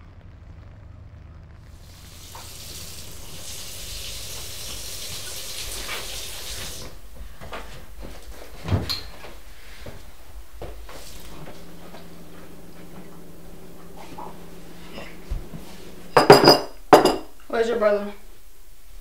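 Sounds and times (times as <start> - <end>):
water running from tap: 1.8 - 7.0, 10.6 - 17.2.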